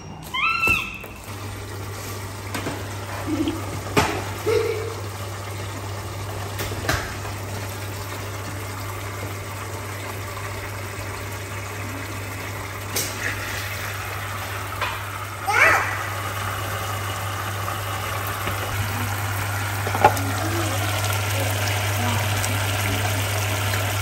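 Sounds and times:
meat sizzling in a frying pan: 0:01.3 - 0:24.0
chopsticks tapping a pan: 0:19.8 - 0:20.2.

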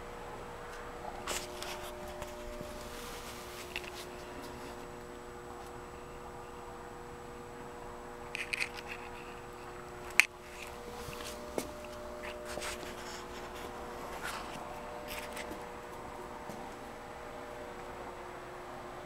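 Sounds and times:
steady electrical hum: 0:00.0 - 0:19.0
camera handling noise: 0:08.4 - 0:09.2.

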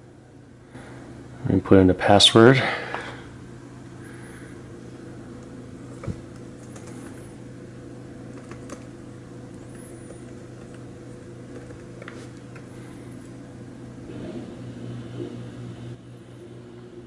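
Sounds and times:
low room hum: 0:00.0 - 0:17.0
laptop keys clicking: 0:06.0 - 0:07.1, 0:08.3 - 0:08.9.

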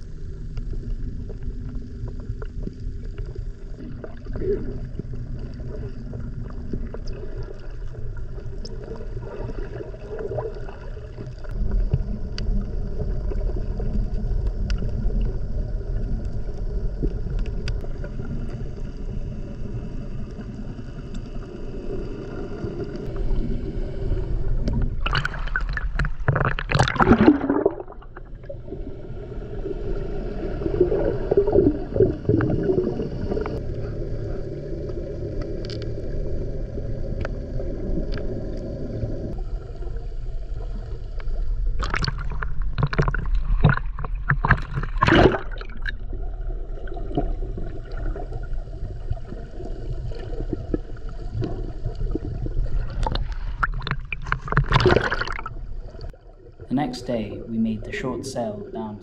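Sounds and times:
water gurgling: 0:21.5 - 0:59.0
steady low hum: 0:32.3 - 0:41.7
muffled underwater noise: 0:56.7 - 0:59.0.

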